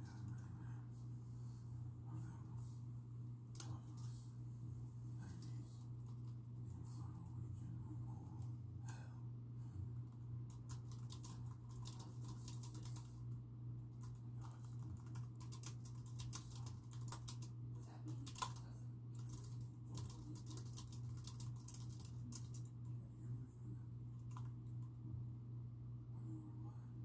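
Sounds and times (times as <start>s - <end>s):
steady low hum: 0.0s - 27.0s
typing on computer keyboard: 10.5s - 13.2s, 14.0s - 18.6s, 19.2s - 22.7s.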